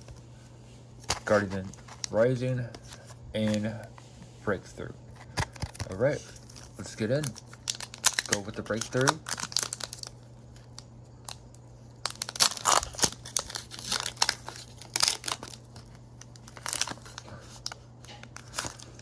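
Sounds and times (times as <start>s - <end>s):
low steady hum: 0.0s - 19.0s
foil wrapper crinkling and tearing: 5.3s - 19.0s.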